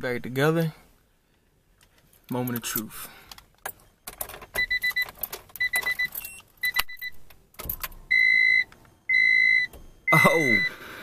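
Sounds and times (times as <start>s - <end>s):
car keys rattling in ignition: 1.8s - 8.1s
car electronic chime beeping: 4.6s - 7.2s, 8.1s - 10.8s.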